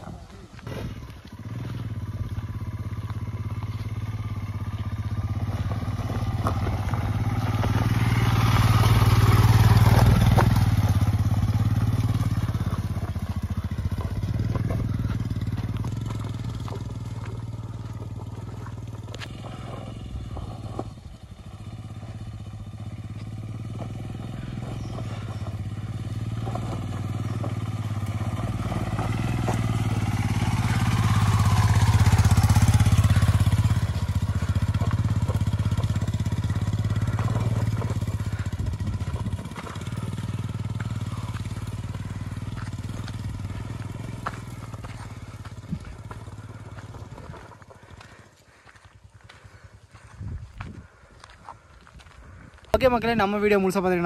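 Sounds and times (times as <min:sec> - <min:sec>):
motorcycle engine revving: 0:00.0 - 0:51.0.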